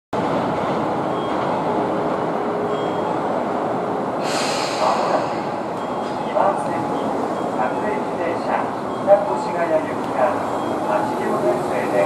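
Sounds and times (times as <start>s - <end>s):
train rumbling: 0.2s - 12.0s
hiss: 4.2s - 5.5s.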